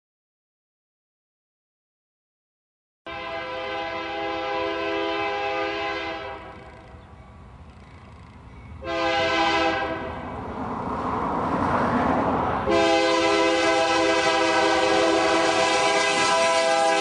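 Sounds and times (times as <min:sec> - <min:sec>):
locomotive air horn blasts: 0:03.1 - 0:06.6, 0:08.8 - 0:10.3, 0:12.7 - 0:17.0
train rumble: 0:03.1 - 0:17.0.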